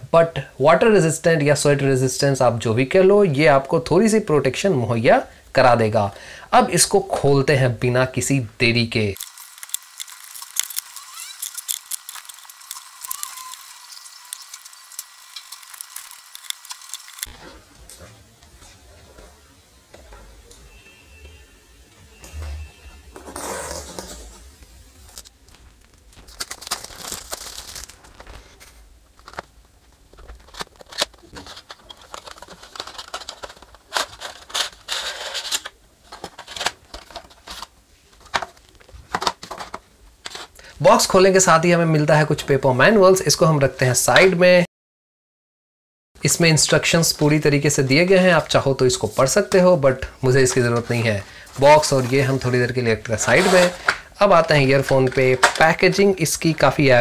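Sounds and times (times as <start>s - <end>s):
cardboard packaging crackling: 9.2s - 17.4s, 25.0s - 40.6s
knife scraping cardboard: 53.2s - 53.8s.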